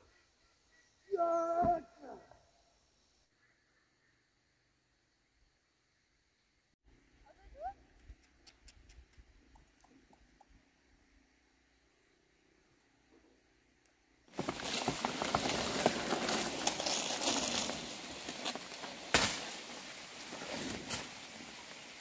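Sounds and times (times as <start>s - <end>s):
rustling through dry leaves: 14.3s - 22.0s.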